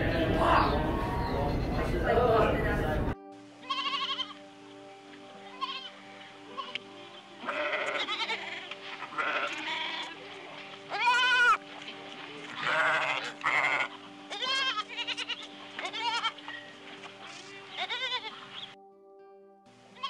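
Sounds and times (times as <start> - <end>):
soft background music: 0.0 - 20.0
goat bleating: 3.6 - 4.4, 5.4 - 6.8, 7.4 - 11.7, 12.5 - 16.7, 17.7 - 18.6.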